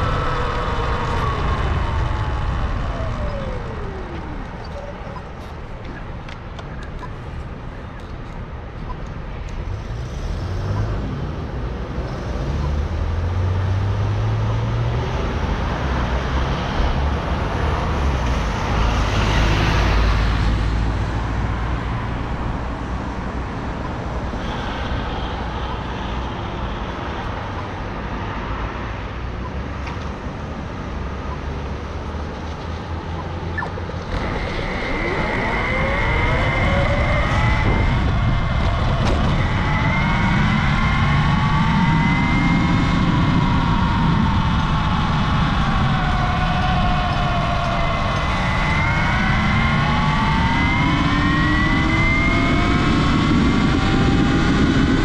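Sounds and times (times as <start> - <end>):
wind and road noise: 0.0 - 55.0
electric motor whine: 34.1 - 54.8.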